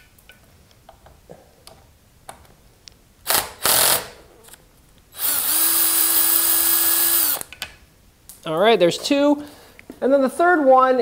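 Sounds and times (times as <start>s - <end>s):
power drill running: 3.3s - 4.2s, 5.2s - 7.5s
drill bit clicking: 5.2s - 7.5s.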